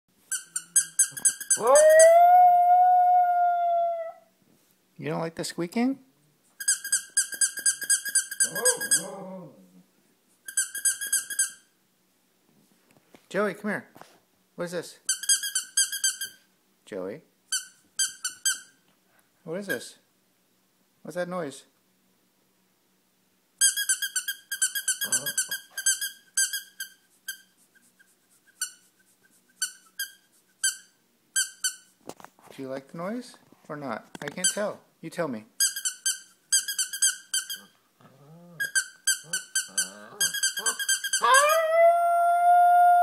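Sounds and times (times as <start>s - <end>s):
squeaky toy squeaking: 0.3s - 2.1s, 6.6s - 9.1s, 10.5s - 11.7s, 15.1s - 16.4s, 17.5s - 18.7s, 23.6s - 27.5s, 28.4s - 28.9s, 29.6s - 31.9s, 35.6s - 37.8s, 38.6s - 41.6s
dog howling: 1.6s - 4.3s, 8.4s - 9.7s, 39.7s - 43.0s.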